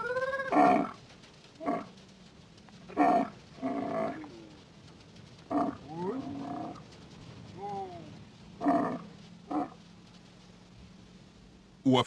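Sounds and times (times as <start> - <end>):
camel bellowing: 0.0 - 1.0, 1.6 - 2.0, 2.9 - 4.6, 5.4 - 9.8.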